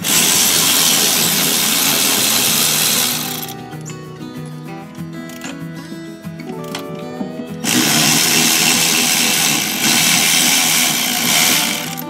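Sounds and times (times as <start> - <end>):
electric ratchet buzzing: 0.0 - 3.8, 7.6 - 12.0
background music: 0.0 - 12.0.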